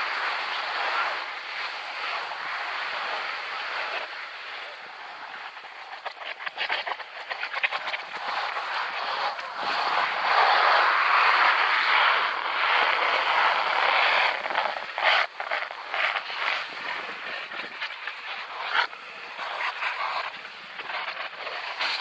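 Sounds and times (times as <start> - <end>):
skis scraping over snow: 0.0 - 22.0.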